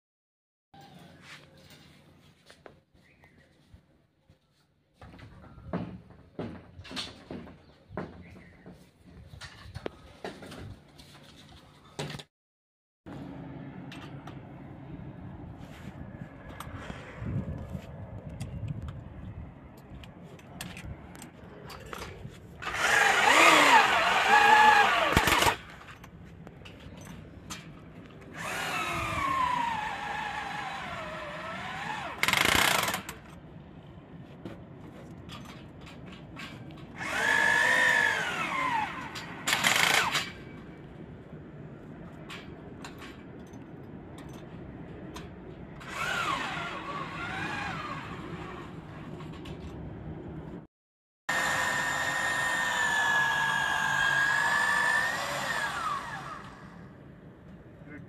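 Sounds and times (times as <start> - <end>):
hammer drill boring into concrete: 22.6 - 25.6, 28.4 - 33.1, 37.0 - 40.3, 51.3 - 56.7.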